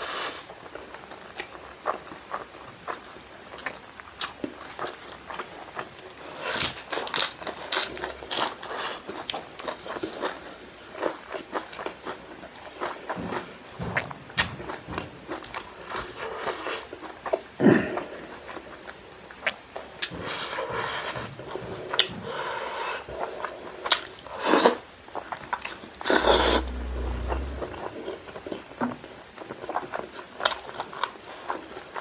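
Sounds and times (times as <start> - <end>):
wet chewing and smacking: 23.2 - 27.6
rubbing burst with low thud: 26.0 - 28.0.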